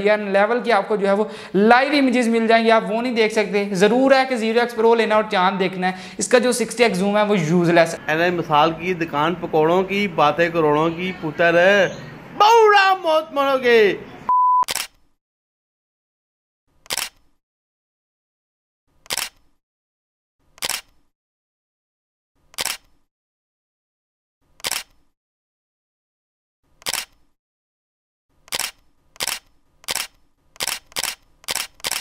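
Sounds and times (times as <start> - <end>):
camera shutter clicks: 14.7 - 15.0, 16.8 - 17.3, 19.0 - 19.5, 20.6 - 21.0, 22.5 - 23.0, 24.6 - 25.0, 26.8 - 27.3, 28.5 - 32.0.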